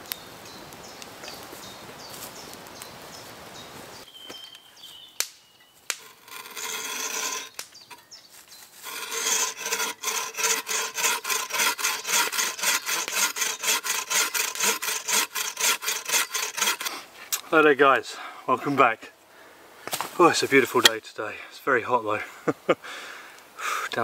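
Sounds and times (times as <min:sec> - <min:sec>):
campfire crackling: 0:00.0 - 0:06.8
bow saw cutting log: 0:05.9 - 0:08.0, 0:08.8 - 0:17.1.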